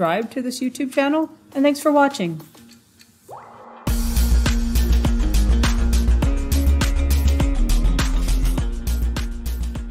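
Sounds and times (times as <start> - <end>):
background music with steady beat: 2.4 - 9.9
strong bass line: 3.8 - 9.2.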